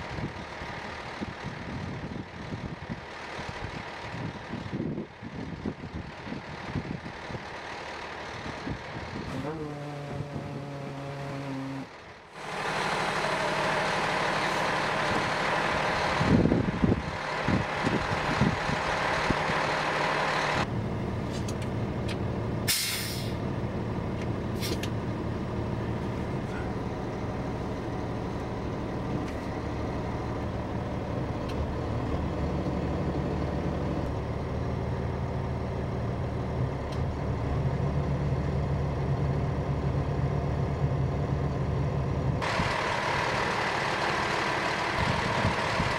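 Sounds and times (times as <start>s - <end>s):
diesel engine running: 0.0s - 45.9s
air hiss: 22.7s - 23.4s.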